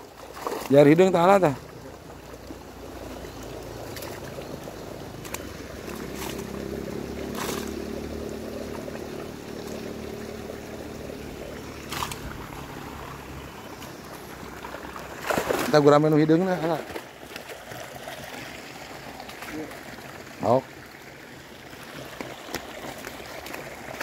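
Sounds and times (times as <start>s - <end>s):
muddy water sloshing and splashing: 0.0s - 24.0s
short sharp splashes: 0.2s - 1.6s, 3.8s - 10.4s, 11.2s - 18.6s.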